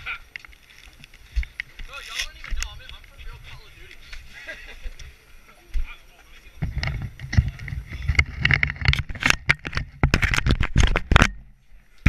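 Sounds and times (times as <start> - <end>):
camera mount jostling: 6.6 - 11.4.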